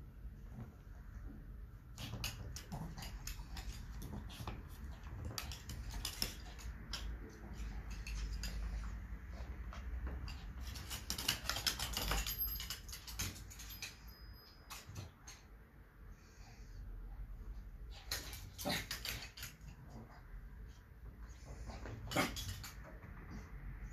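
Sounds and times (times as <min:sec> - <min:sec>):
dog claws clicking on wooden floor: 0:01.9 - 0:08.9, 0:09.8 - 0:13.9.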